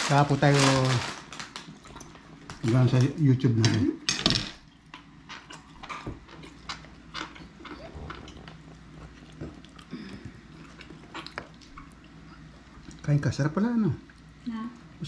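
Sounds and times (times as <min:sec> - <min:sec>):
person chewing: 0:05.4 - 0:13.0.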